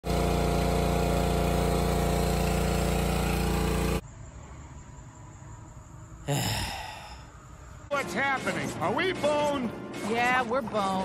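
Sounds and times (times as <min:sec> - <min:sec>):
small gasoline engine running: 0:00.0 - 0:04.0.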